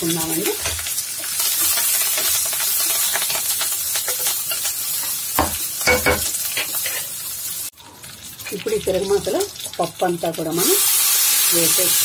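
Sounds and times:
spices sizzling in hot oil: 0.0s - 12.0s
spatula scraping and stirring: 6.5s - 7.2s.

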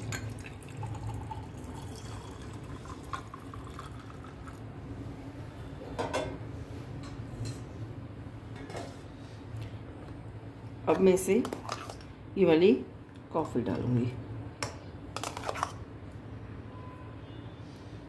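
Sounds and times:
milk pouring into a glass: 0.0s - 4.7s.

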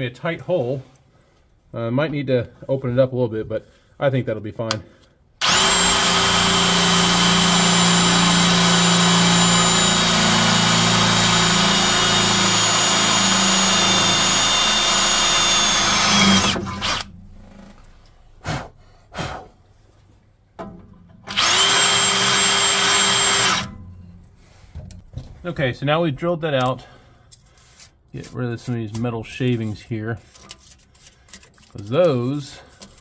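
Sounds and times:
cordless drill boring through metal: 5.4s - 17.1s, 21.3s - 23.8s.

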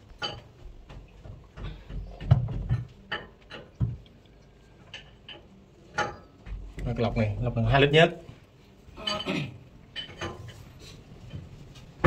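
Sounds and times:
knocks and clunks: 0.2s - 4.0s.

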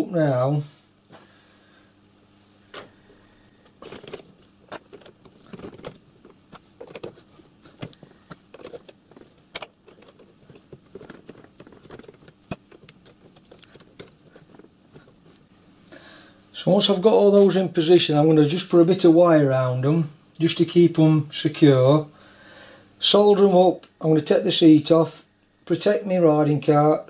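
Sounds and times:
metal pipes clinking: 3.7s - 15.4s.

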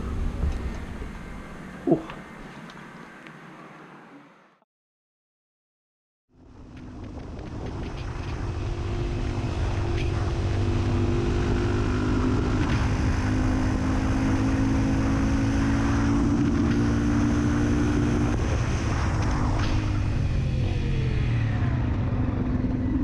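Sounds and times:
wind and road noise: 0.0s - 4.6s, 6.3s - 23.0s
motorcycle engine cruising: 6.5s - 23.0s.

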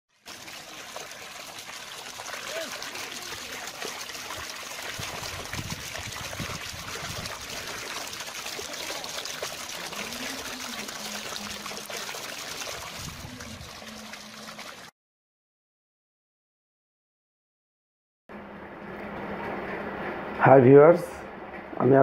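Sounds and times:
running water: 0.1s - 14.9s.

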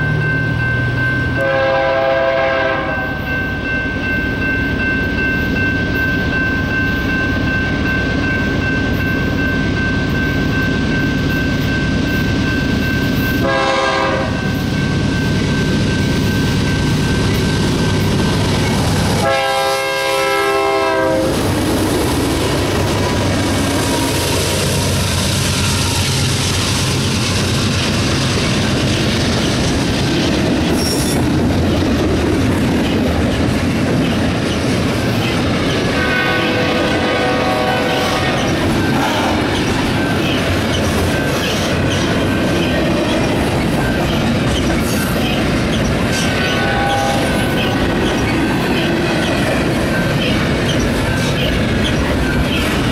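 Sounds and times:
diesel locomotives passing: 0.0s - 52.9s
train cars clacking over rails: 0.0s - 52.9s
locomotive horn: 1.4s - 3.3s, 13.4s - 14.4s, 19.2s - 21.4s, 35.9s - 39.6s, 46.4s - 47.8s
train wheel squeal: 2.5s - 19.6s, 22.7s - 31.8s, 34.0s - 52.9s.

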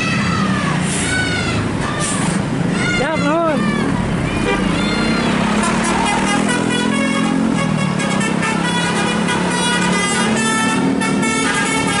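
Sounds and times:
bus engine: 0.0s - 12.0s
bus horn playing a melody: 4.3s - 12.0s.

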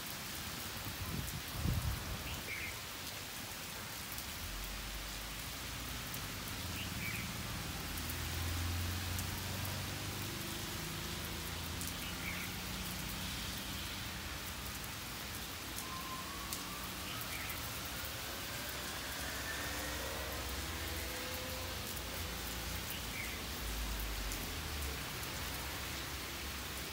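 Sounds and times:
heavy rain pouring: 0.0s - 26.9s.

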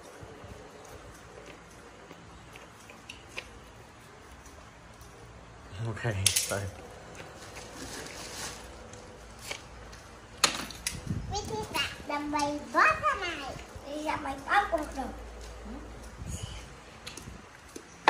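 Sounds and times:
plastic bag crinkling: 7.2s - 9.6s.

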